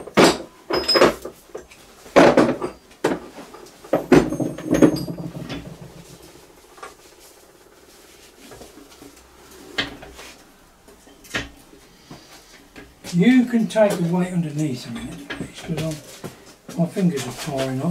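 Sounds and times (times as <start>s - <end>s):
metal parts knocking and scraping: 3.4s - 6.4s
metal clunks: 3.9s - 6.4s.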